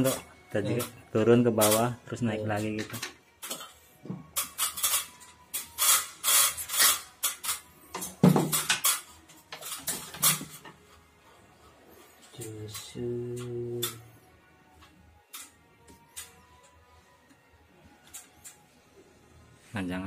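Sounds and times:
rustling and scraping of wires: 0.0 - 20.0
man humming or speaking: 12.4 - 14.0.

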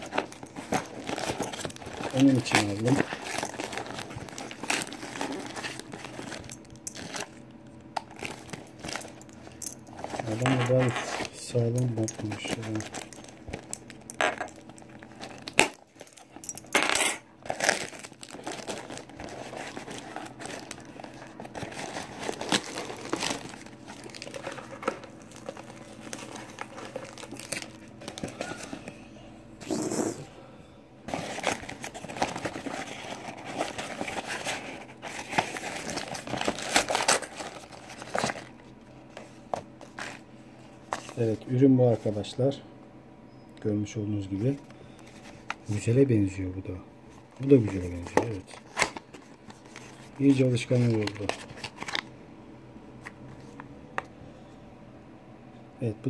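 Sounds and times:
packaging crinkling and rustling: 0.0 - 16.8, 17.4 - 29.0, 31.1 - 42.3, 47.1 - 52.1.

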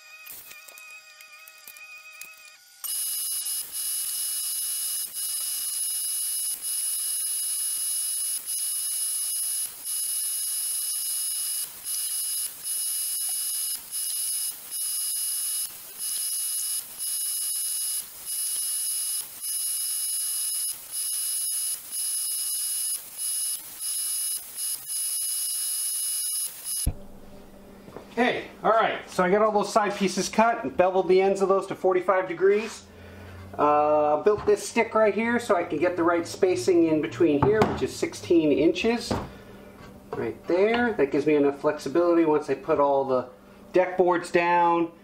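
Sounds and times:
miter saw motor whining: 0.0 - 26.9.

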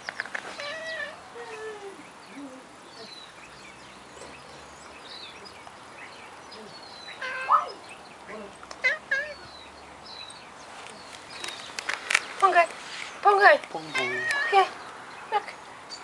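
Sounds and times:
cat meowing: 13.9 - 14.7.

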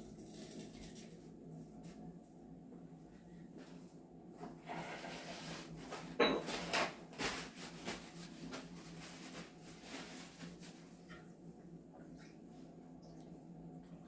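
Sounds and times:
steady low hum: 0.0 - 14.0
rubbing and scraping handling noise: 4.4 - 11.3.

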